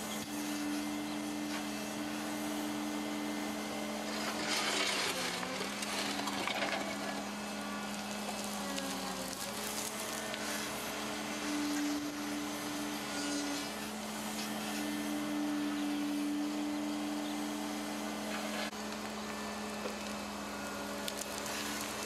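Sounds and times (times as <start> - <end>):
excavator engine humming: 0.0 - 22.0
soil scraping and pouring: 3.9 - 16.1.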